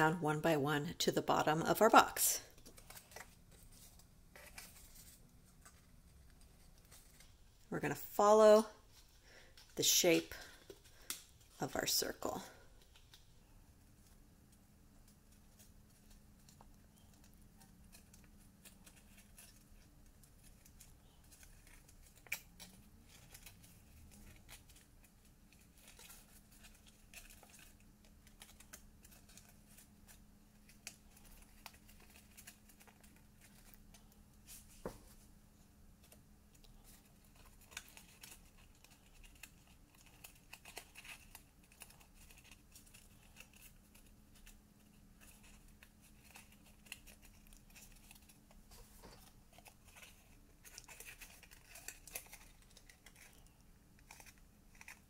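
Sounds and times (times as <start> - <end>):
cardstock rustling and clicking: 15.0 - 35.2, 36.0 - 55.0.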